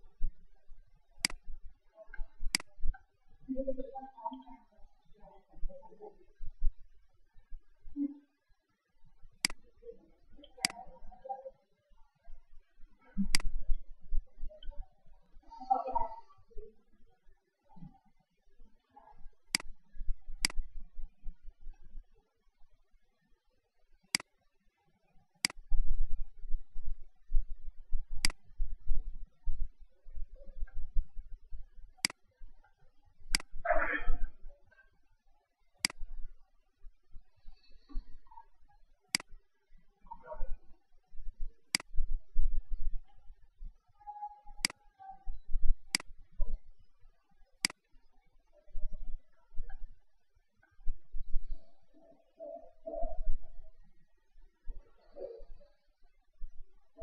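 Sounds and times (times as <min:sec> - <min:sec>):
computer mouse clicks: 0:01.2 - 0:01.4, 0:02.1 - 0:02.7, 0:09.4 - 0:09.6, 0:10.4 - 0:10.9, 0:13.2 - 0:13.6, 0:19.5 - 0:19.7, 0:20.4 - 0:20.6, 0:28.2 - 0:28.4, 0:32.0 - 0:32.2, 0:35.8 - 0:36.0, 0:39.1 - 0:39.3, 0:41.7 - 0:42.0, 0:44.6 - 0:44.8, 0:47.6 - 0:47.9
mouse button clicking: 0:20.4 - 0:20.6, 0:28.2 - 0:28.4.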